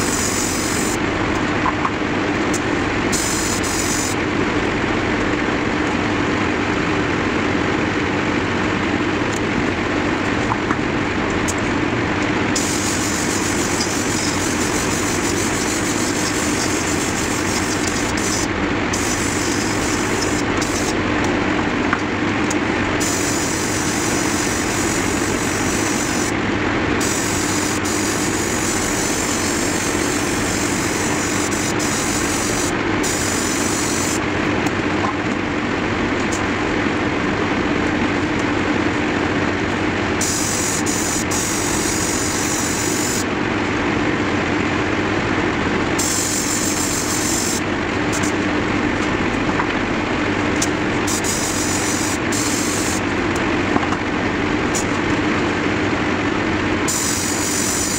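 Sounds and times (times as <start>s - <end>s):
airbrush air hiss: 0.0s - 1.0s, 3.1s - 4.2s, 12.6s - 21.0s, 23.0s - 26.4s, 27.0s - 34.2s, 40.2s - 43.2s, 46.0s - 47.6s, 51.1s - 53.0s, 56.9s - 57.9s
air compressor humming: 0.0s - 4.8s, 7.5s - 36.5s, 39.4s - 43.7s, 44.9s - 57.9s.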